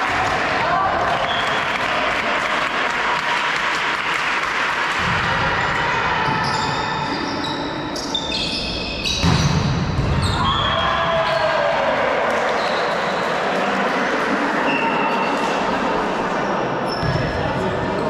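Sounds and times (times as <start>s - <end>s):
sneakers squeaking on court floor: 5.6s - 10.8s, 16.9s - 17.7s
people shouting: 10.2s - 12.4s.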